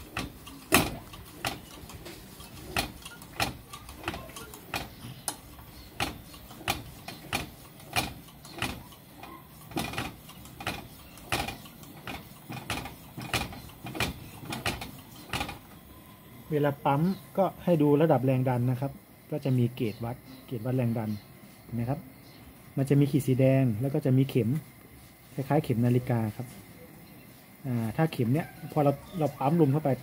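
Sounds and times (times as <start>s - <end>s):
hand air pump clicking: 0.0s - 15.6s.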